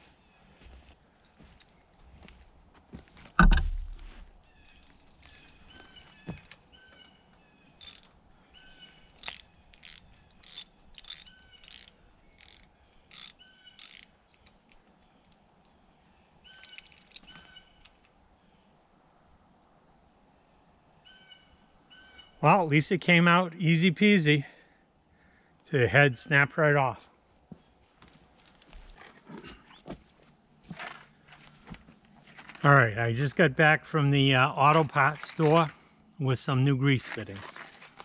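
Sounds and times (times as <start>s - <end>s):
heavy thump: 3.4s - 4.3s
hand wrench clicking: 7.8s - 8.1s, 9.2s - 14.8s.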